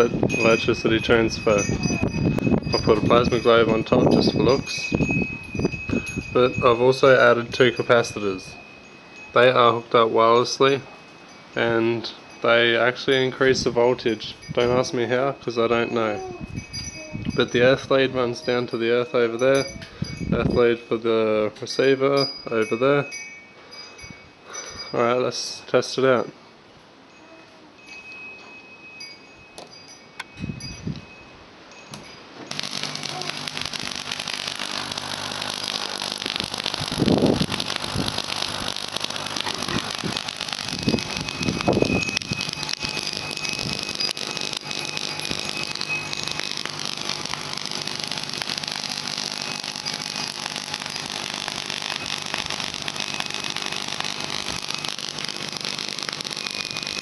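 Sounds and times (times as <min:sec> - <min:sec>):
tesla coil hissing buzz: 0:00.0 - 0:09.5, 0:32.5 - 0:57.0.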